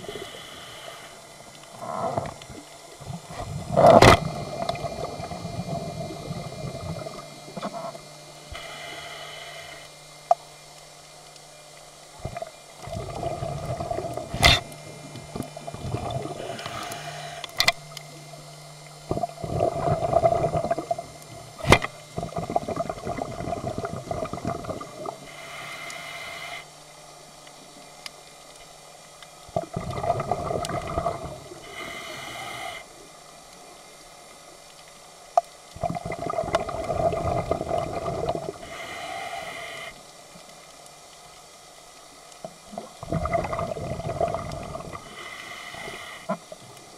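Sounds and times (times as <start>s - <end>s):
hiss of inhalation: 0.0s - 1.3s, 8.5s - 9.9s, 16.3s - 17.6s, 25.2s - 26.7s, 31.6s - 33.0s, 38.6s - 40.0s, 44.9s - 46.6s
bubbling exhalations: 12.8s - 17.0s, 19.1s - 25.3s, 29.5s - 31.5s, 35.8s - 38.7s, 42.7s - 45.2s.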